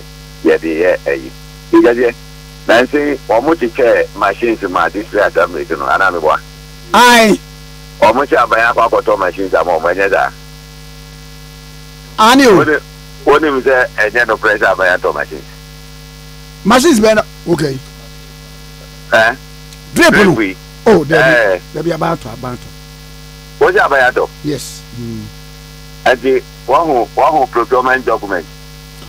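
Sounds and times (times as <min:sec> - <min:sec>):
electrical mains hum: 0:00.0 - 0:29.0
person speaking: 0:06.9 - 0:07.4, 0:24.1 - 0:25.4.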